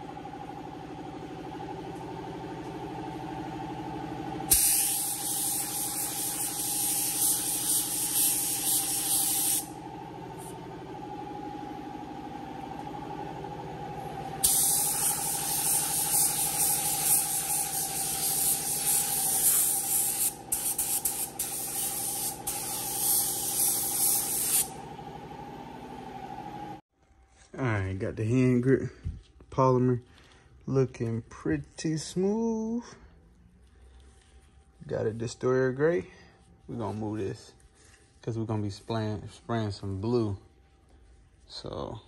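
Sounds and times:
box fans humming: 0.0s - 26.8s
paint spray gun hissing: 4.5s - 9.8s, 14.4s - 24.8s.

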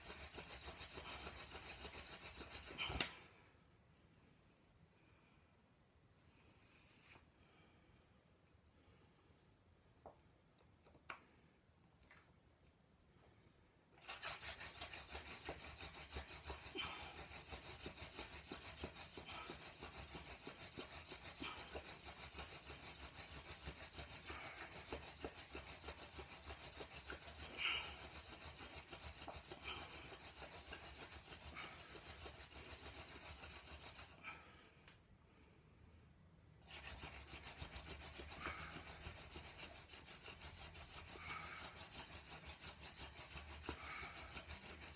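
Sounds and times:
wooden spindle rubbing on board: 0.0s - 3.1s, 14.0s - 34.2s, 36.6s - 44.9s.

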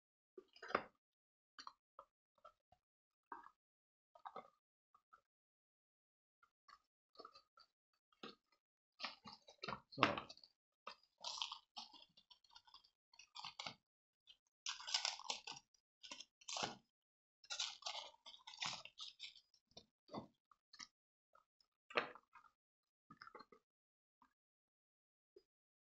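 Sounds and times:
plastic packaging crinkling: 14.7s - 16.8s, 17.5s - 19.3s.

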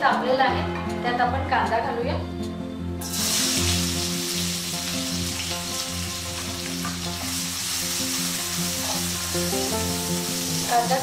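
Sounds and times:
background music: 0.0s - 11.0s
onions sizzling in oil: 3.0s - 11.0s.

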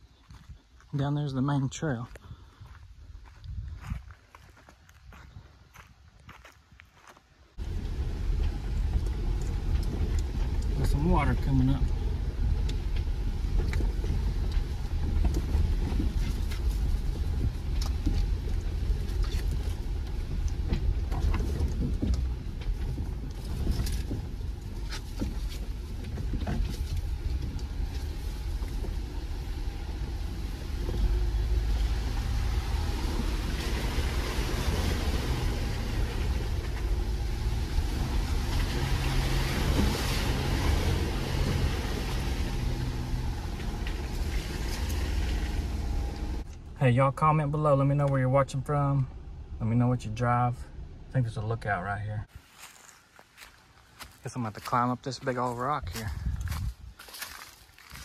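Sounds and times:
off-road vehicle engine: 0.0s - 58.0s
water splashing: 9.0s - 46.4s
knocks and rattles: 12.6s - 29.1s.

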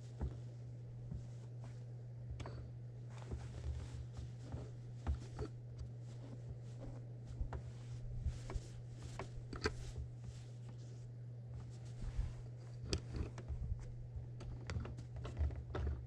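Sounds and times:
quilt fabric rustling: 3.0s - 12.8s.

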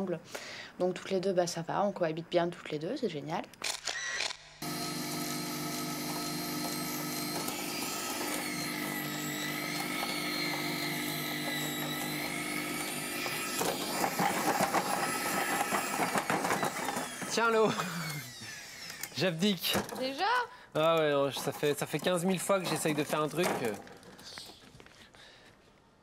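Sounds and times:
potter's wheel motor hum: 4.6s - 19.1s.

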